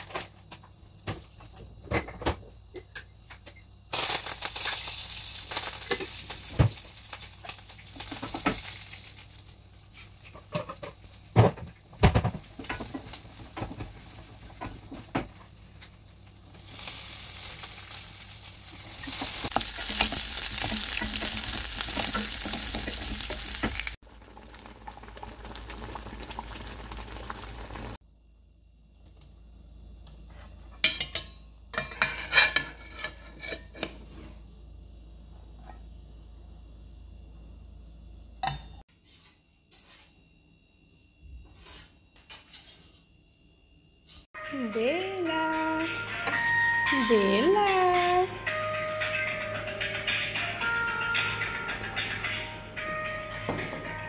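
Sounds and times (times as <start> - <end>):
food sizzling in a pan: 3.9 - 11.3, 16.4 - 28.0
kitchen utensils clattering: 30.8 - 34.1.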